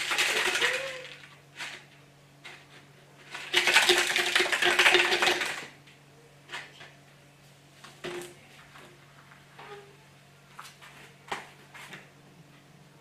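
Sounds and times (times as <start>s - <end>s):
plastic bottle crumpling: 0.0s - 1.8s.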